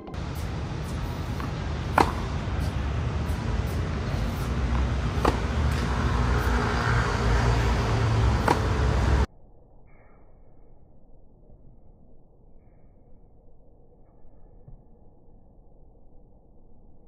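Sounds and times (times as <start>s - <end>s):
low outdoor rumble: 0.0s - 9.8s
tennis racket striking ball: 0.1s - 9.3s.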